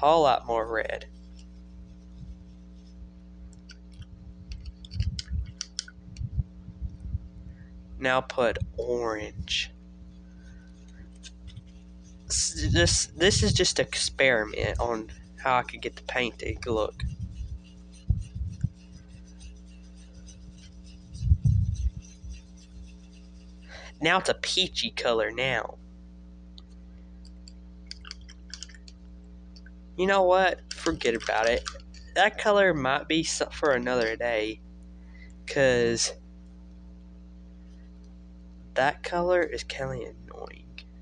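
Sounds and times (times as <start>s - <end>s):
paintbrush scratching palette: 0.0s - 5.9s, 9.3s - 24.6s, 30.1s - 34.3s
steady low hum: 0.0s - 41.0s
dull low thumps: 4.1s - 7.7s, 16.5s - 18.8s, 21.0s - 22.3s.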